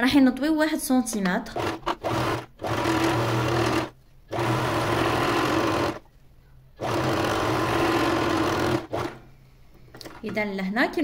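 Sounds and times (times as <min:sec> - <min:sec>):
sewing machine stitching: 0:01.5 - 0:06.0, 0:06.8 - 0:09.2.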